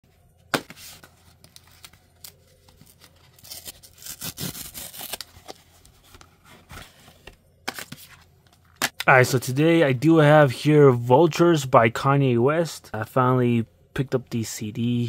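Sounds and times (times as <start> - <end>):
cardboard tear strip ripping: 3.0 - 5.4.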